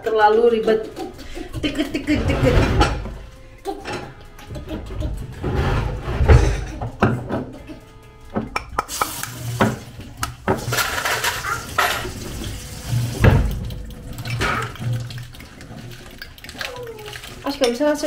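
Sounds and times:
dishes and utensils clattering: 0.0 - 18.0
tap running into metal sink: 8.4 - 17.9.

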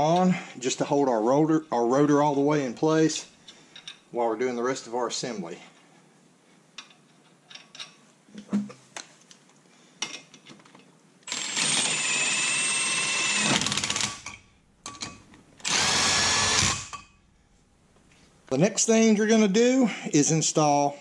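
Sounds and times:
impact driver spinning: 11.3 - 17.0.

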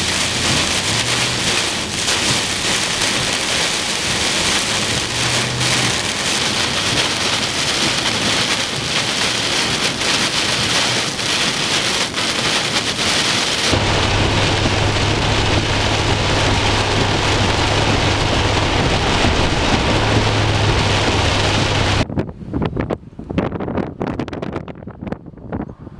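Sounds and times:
heavy rain on car windshield: 0.0 - 22.0
road noise: 0.0 - 22.2
steady low hum: 13.7 - 22.0.

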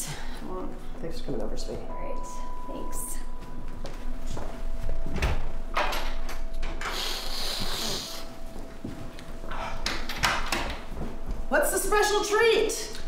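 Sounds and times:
footsteps: 3.1 - 5.6, 7.3 - 9.8, 10.7 - 12.2
person sniffing hard: 6.9 - 8.3.

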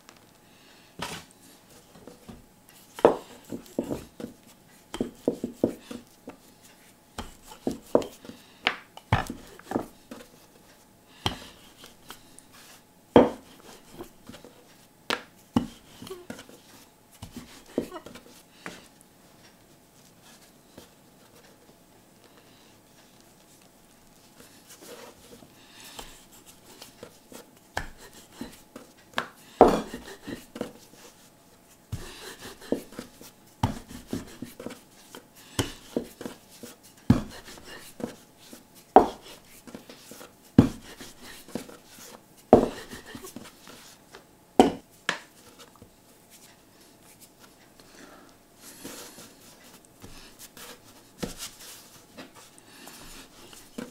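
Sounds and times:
rolling pin rubbing dough: 1.0 - 8.4, 9.2 - 14.8, 15.5 - 18.9, 22.9 - 44.0.

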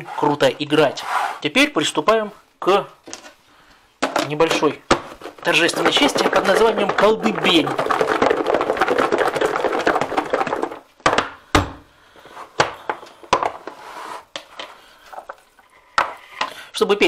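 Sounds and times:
plastic container rattling: 4.0 - 11.8
plastic knocks and clicks: 4.0 - 11.8.

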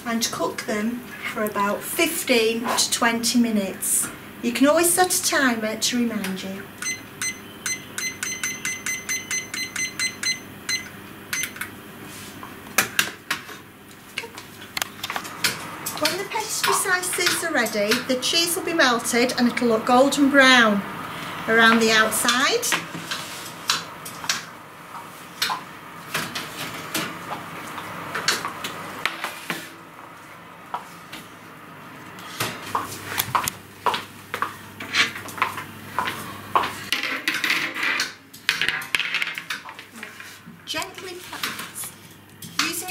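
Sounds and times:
kitchen timer beeping: 6.2 - 11.7.

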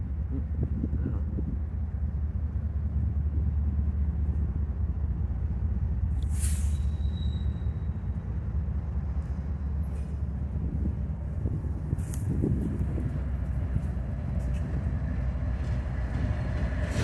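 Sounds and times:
diesel locomotives rumbling: 0.0 - 17.0
short sharp hiss: 6.2 - 6.9.

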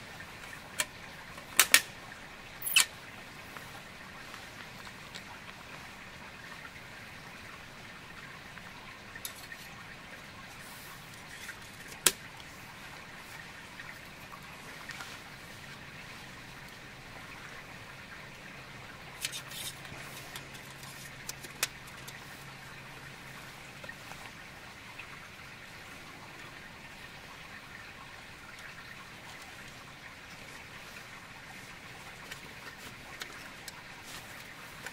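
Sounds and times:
rainwater dripping and trickling: 0.0 - 34.9
sharp clicks and small knocks: 0.7 - 1.9, 19.2 - 22.2.

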